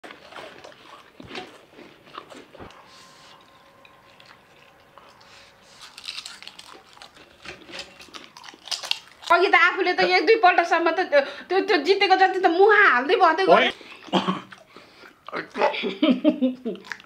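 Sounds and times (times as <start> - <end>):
chewing noodles: 0.0 - 9.5, 16.6 - 17.0
potato chips crunching: 3.4 - 9.5.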